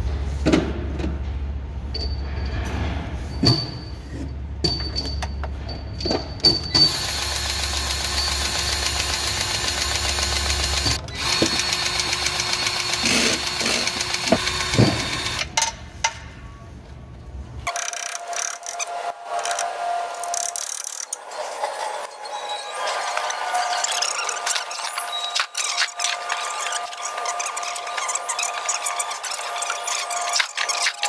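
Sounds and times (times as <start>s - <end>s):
grease gun motor running: 6.8s - 15.5s.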